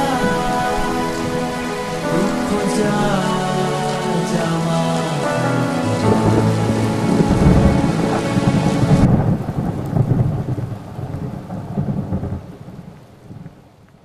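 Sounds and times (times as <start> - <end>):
rain falling: 0.0 - 14.0
rolling thunder: 4.3 - 13.4.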